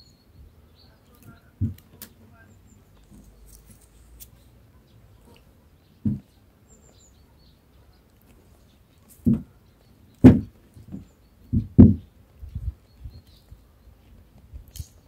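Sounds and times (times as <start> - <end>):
faint bird chirps: 0.0 - 10.2.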